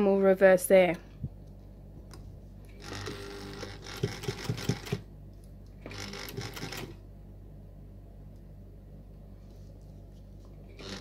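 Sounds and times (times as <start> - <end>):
sewing machine stitching: 2.8 - 5.0, 5.8 - 7.0, 10.8 - 11.0.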